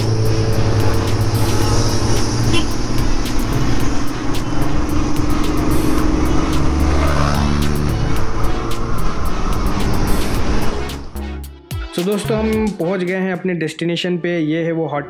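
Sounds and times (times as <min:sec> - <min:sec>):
motorcycle engine running: 0:00.0 - 0:11.2
background music: 0:00.0 - 0:15.0.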